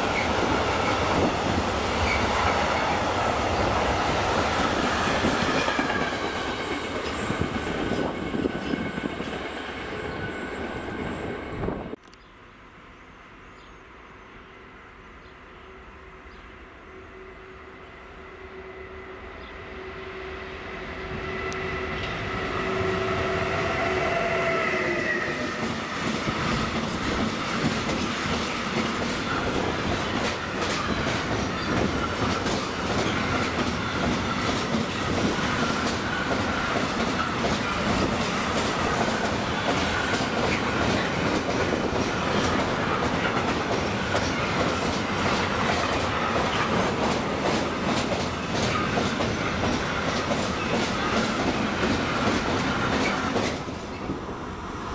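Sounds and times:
train wagons rumbling: 0.0 - 12.0, 21.6 - 54.5
electric locomotive whine: 0.0 - 54.9
wheels clacking over rail joints: 25.6 - 54.1.

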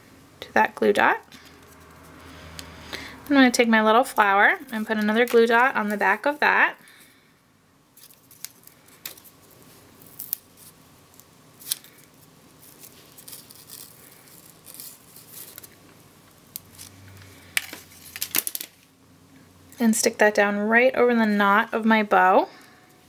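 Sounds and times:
paper backing strip clicks and rustles: 8.0 - 16.9, 17.5 - 18.9.

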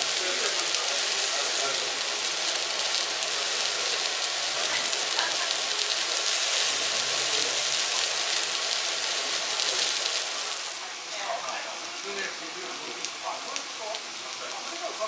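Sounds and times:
meat sizzling on a grill: 0.0 - 15.0.

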